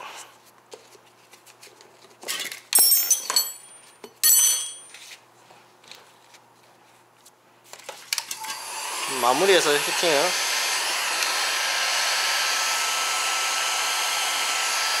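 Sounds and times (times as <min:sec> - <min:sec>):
metal tools clinking on wheel: 0:02.3 - 0:05.0.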